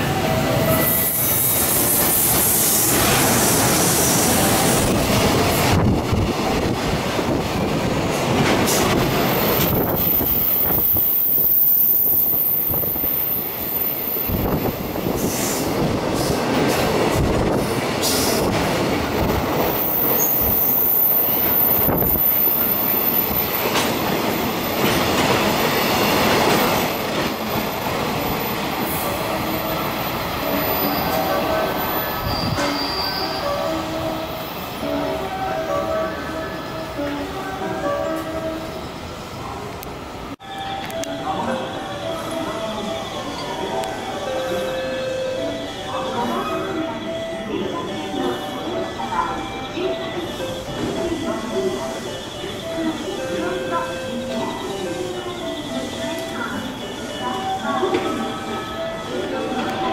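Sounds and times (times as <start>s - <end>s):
high wheel squeal: 28.8s - 35.2s.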